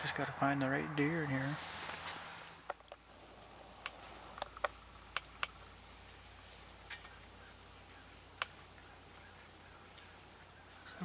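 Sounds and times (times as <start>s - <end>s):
faint sharp clicks: 3.8s - 5.7s, 8.3s - 10.2s.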